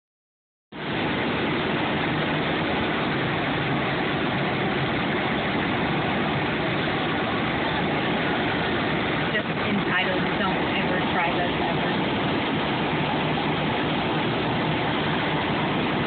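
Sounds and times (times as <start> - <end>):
car engine idling: 0.8 - 16.0.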